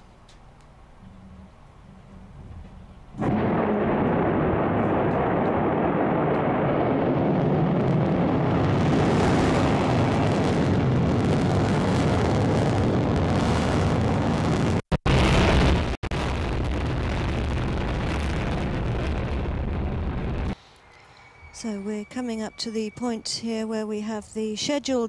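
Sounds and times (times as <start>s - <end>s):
rocket engine rushing rumble: 3.2s - 20.6s.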